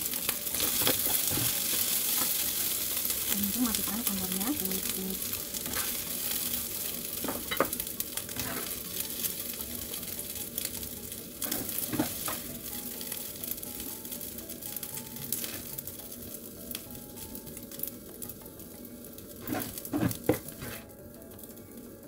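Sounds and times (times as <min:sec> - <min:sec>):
rice sizzling in frying pan: 0:00.0 - 0:22.0
spatula scraping pan: 0:05.6 - 0:06.0, 0:08.3 - 0:08.8, 0:19.4 - 0:20.9.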